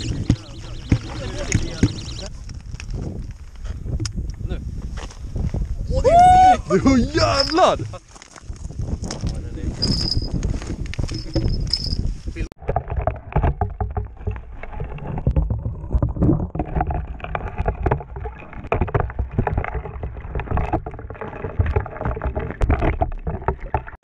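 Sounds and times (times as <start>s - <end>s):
muffled underwater water rumbling: 0.0s - 2.4s, 12.5s - 24.0s
knocks and clicks underwater: 0.0s - 4.4s, 7.4s - 24.0s.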